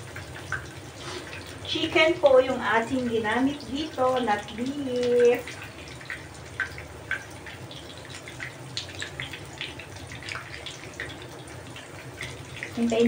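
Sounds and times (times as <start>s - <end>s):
patties sizzling in hot oil: 0.0s - 13.0s.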